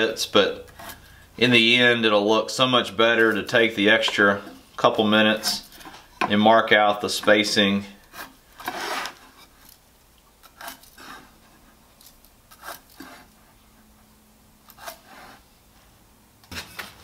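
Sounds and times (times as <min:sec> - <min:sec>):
pencil scratching lines: 0:08.1 - 0:09.3, 0:12.5 - 0:13.4, 0:14.7 - 0:15.4.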